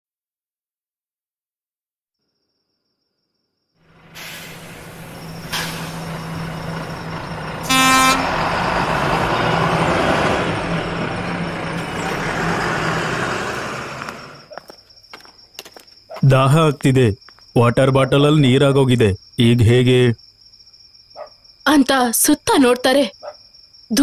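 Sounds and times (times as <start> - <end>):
bus engine humming: 3.8 - 14.6
horn toot: 7.6 - 8.6.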